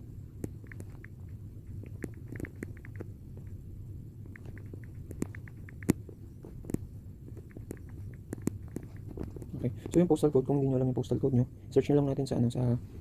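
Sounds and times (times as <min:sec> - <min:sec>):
low room hum: 0:00.0 - 0:13.0
tapping on touchscreen: 0:00.4 - 0:03.6, 0:04.2 - 0:10.0.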